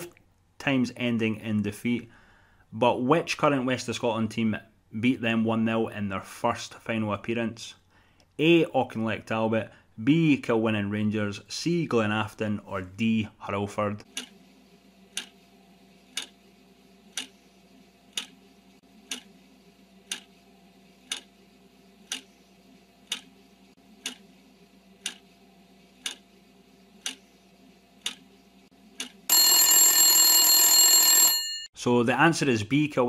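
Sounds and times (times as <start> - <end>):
clock ticking: 14.1 - 14.3, 15.2 - 15.4, 16.1 - 16.4, 18.1 - 18.4, 19.1 - 19.3, 20.0 - 20.3, 21.1 - 21.3, 22.1 - 22.3, 23.0 - 23.3, 24.0 - 24.2, 25.0 - 25.2, 26.0 - 26.2, 27.0 - 27.2, 28.0 - 28.2, 29.0 - 29.2
ringing alarm bell: 29.3 - 31.8.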